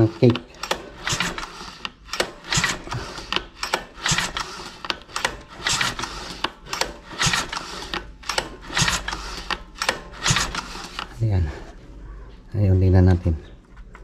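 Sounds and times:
recoil starter pull rasp: 0.0 - 11.2.

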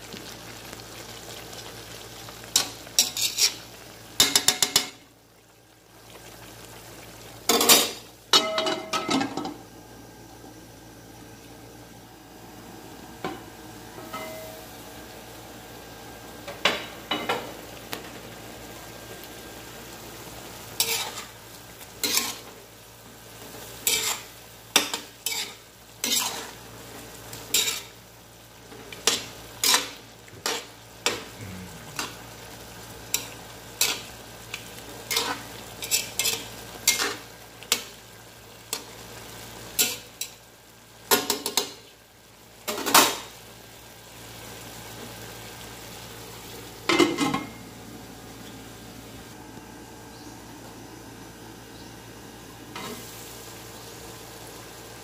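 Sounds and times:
sauce simmering sizzle: 0.0 - 55.0
metal spatula scraping wok: 3.0 - 3.6, 20.8 - 21.3, 22.0 - 22.5, 23.8 - 24.3, 24.9 - 26.6.

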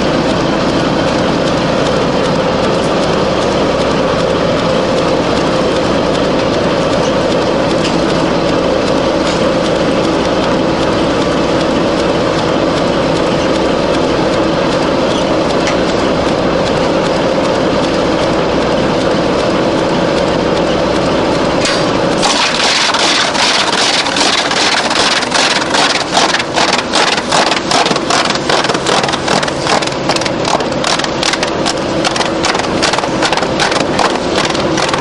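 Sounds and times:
wood chipper motor humming: 0.0 - 35.0
chain conveyor rattling: 21.7 - 35.0.

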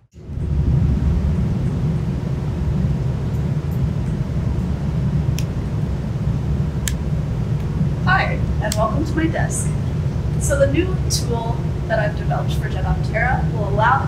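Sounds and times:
ventilation system rumble: 0.0 - 14.0.

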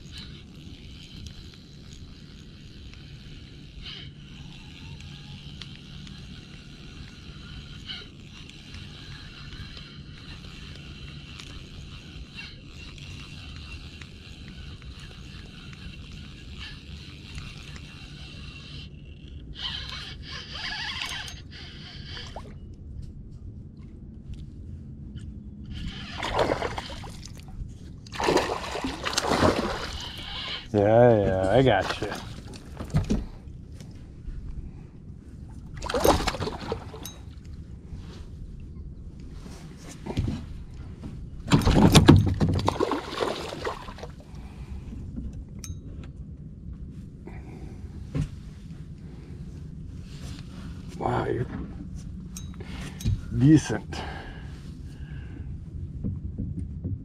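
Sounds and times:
fishing reel rasping whir: 0.0 - 22.8, 24.3 - 27.5, 28.1 - 34.0
water splashing: 26.1 - 27.4, 28.1 - 30.2, 41.7 - 44.2
low rumble: 44.2 - 57.0.

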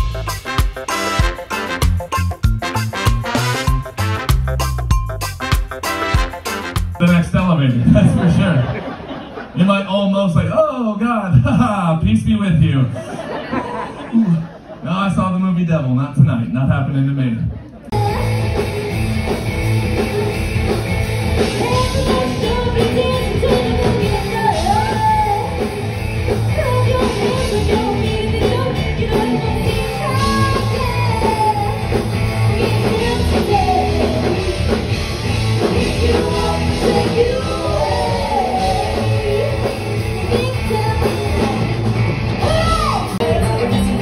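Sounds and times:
drum and bass beat: 0.0 - 8.2, 17.9 - 44.0
live rock song: 0.0 - 16.3, 17.7 - 44.0
person singing: 21.5 - 25.8, 26.5 - 34.8, 35.6 - 44.0.

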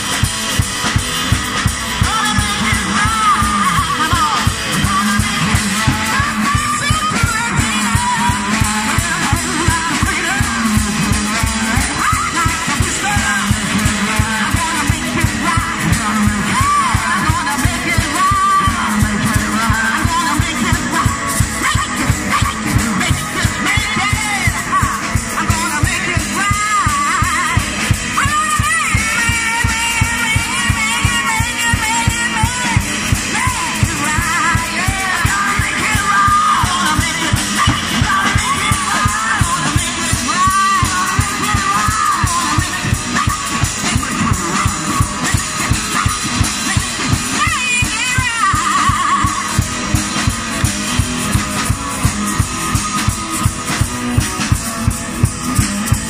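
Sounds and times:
guitar and drums backing: 0.0 - 56.0
woman singing gospel song: 2.0 - 50.0.

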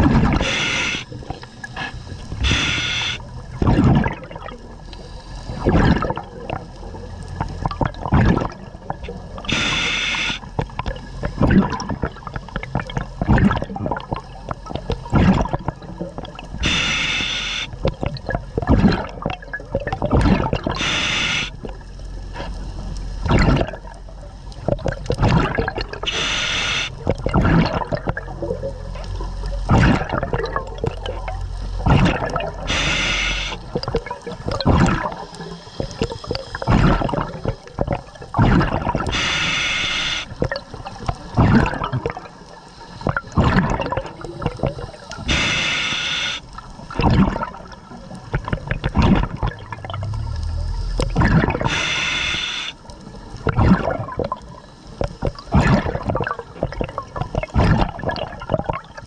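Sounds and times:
bubbling exhaled air: 0.0 - 21.8, 23.2 - 52.8, 53.4 - 59.0
hissing regulator inhale: 0.4 - 1.1, 1.7 - 3.2, 9.5 - 10.4, 16.6 - 17.7, 20.8 - 21.6, 26.1 - 26.9, 32.7 - 33.6, 39.1 - 40.3, 45.2 - 46.5, 50.1 - 52.8.

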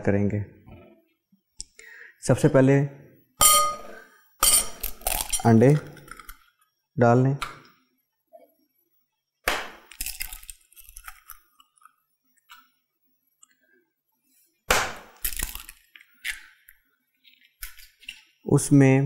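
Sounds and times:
clinks on glass bowl: 3.4 - 5.5
eggshells cracking: 4.7 - 6.6, 9.5 - 12.6, 14.8 - 18.3.

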